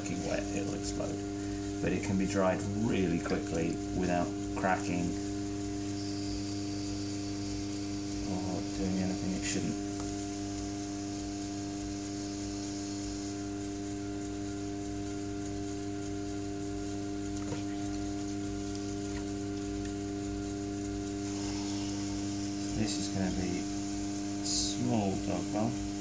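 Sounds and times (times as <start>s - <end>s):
potter's wheel motor humming: 0.0s - 26.0s.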